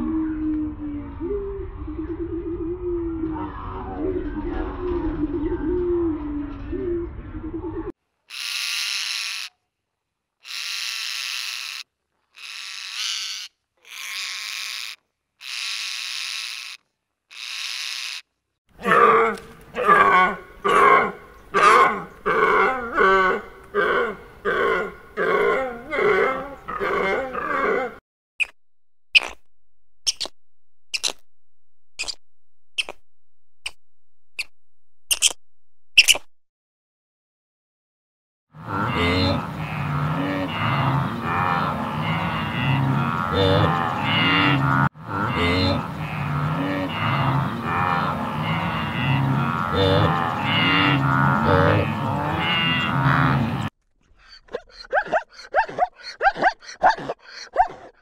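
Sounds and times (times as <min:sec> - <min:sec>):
short squeaky animal calls: 0:08.3 - 0:09.6, 0:10.4 - 0:11.8, 0:12.4 - 0:18.3, 0:35.1 - 0:35.4, 0:36.0 - 0:36.3
sheep bleating: 0:38.9 - 0:53.7.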